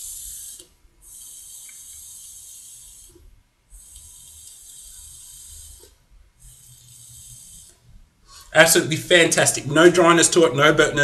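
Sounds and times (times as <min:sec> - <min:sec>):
airy hissing of vaping: 0:00.0 - 0:08.5.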